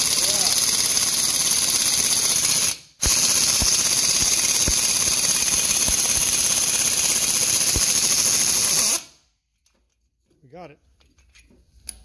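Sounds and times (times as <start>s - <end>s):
pneumatic impact gun hammering: 0.0s - 9.1s.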